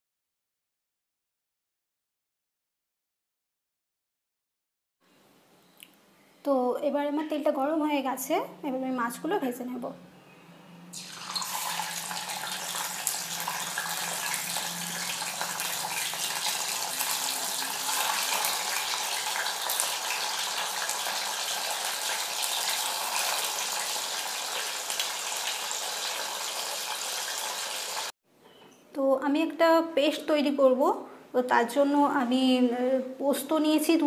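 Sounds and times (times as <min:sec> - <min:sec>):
fish frying in hot oil: 0:11.0 - 0:28.1.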